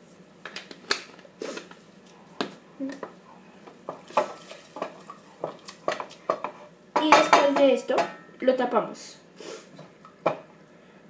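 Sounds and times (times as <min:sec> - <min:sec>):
utensils knocking on pot: 0:03.9 - 0:08.3, 0:10.2 - 0:10.5.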